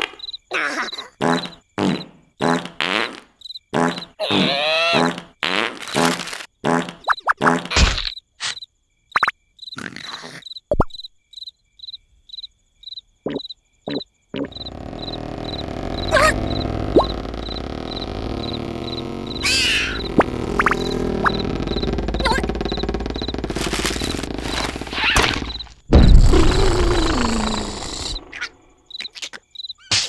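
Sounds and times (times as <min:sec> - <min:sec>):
crickets chirping: 0:00.0 - 0:02.3, 0:03.4 - 0:04.1, 0:08.1 - 0:29.9
cartoon character grunts and babbling: 0:00.5 - 0:01.2, 0:04.2 - 0:05.1, 0:26.4 - 0:28.1
low steady rumble: 0:14.5 - 0:25.6.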